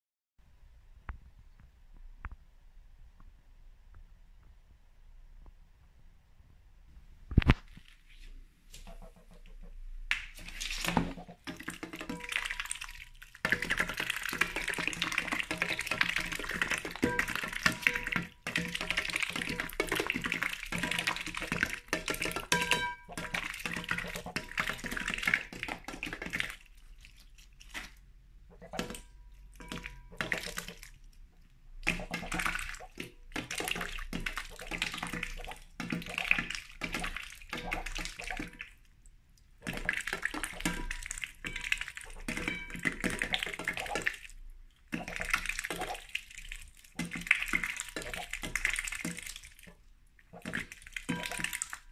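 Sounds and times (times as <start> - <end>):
duck dabbling in water: 8.7 - 31.2, 31.8 - 38.8, 39.6 - 44.3, 44.9 - 51.9.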